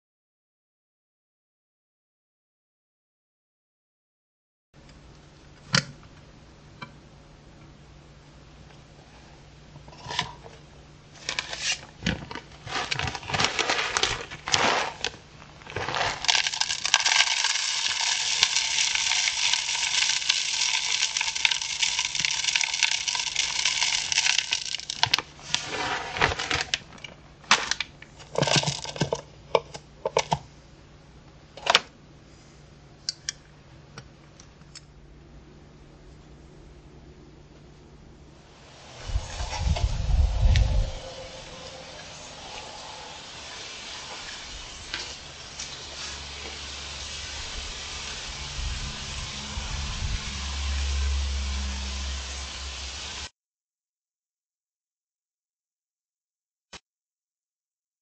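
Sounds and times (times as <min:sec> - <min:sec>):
plastic bag crinkling: 0:11.2 - 0:29.2
birdseed pouring through funnel: 0:12.4 - 0:26.8, 0:27.5 - 0:29.2, 0:38.6 - 0:53.3.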